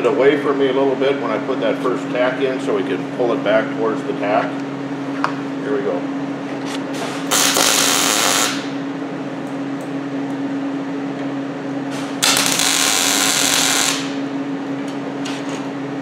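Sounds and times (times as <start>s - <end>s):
welding arc buzzing: 7.2s - 8.9s, 11.9s - 15.4s.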